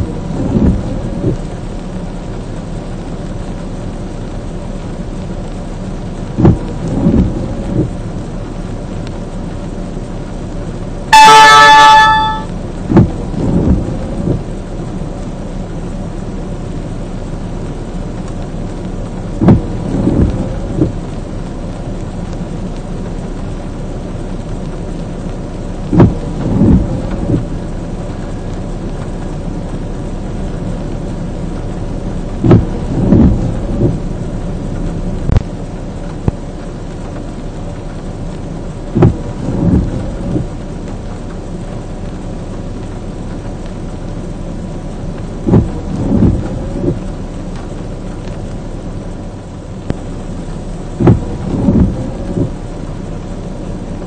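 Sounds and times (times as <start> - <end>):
low thumps: 0.0 - 1.5, 6.4 - 8.0, 32.4 - 34.1, 51.0 - 52.6
rain on a vehicle: 0.0 - 54.0.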